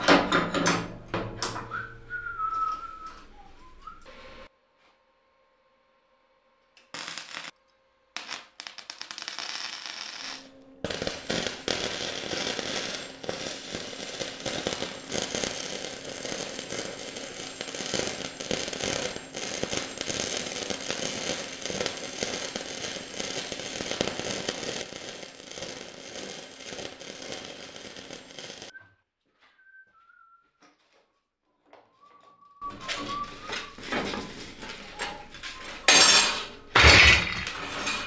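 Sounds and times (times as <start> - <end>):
arc welding crackling: 6.8 - 7.6, 8.2 - 28.7, 32.7 - 38.0.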